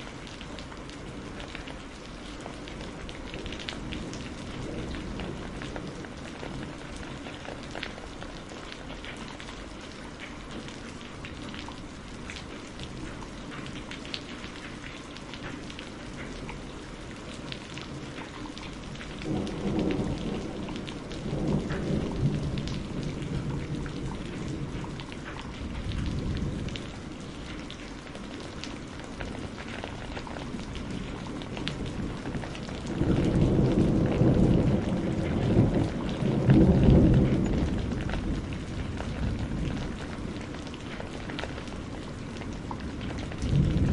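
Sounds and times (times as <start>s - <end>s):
steady rain patter: 0.0s - 43.9s
rolling thunder: 19.0s - 27.1s, 29.2s - 40.5s, 41.6s - 43.9s.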